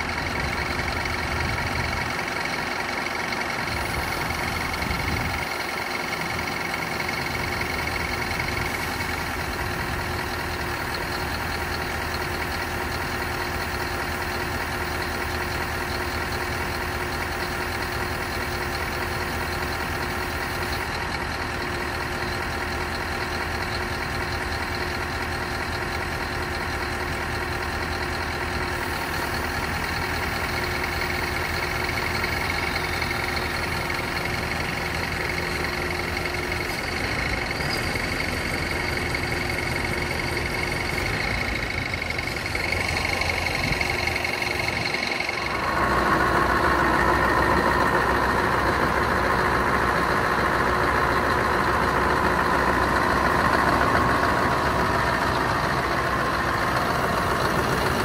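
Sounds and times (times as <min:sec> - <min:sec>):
diesel engine idling: 0:00.0 - 0:58.0
steady higher whine: 0:32.2 - 0:49.4.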